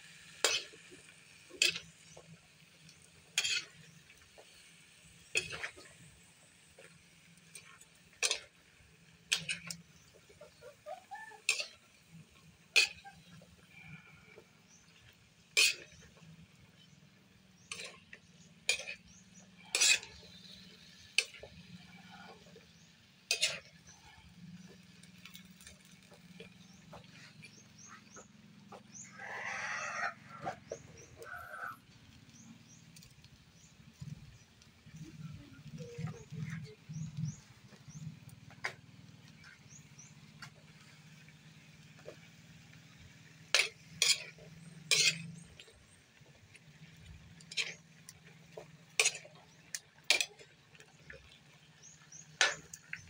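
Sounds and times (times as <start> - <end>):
metal ladle clinking against wok: 43.6 - 45.4.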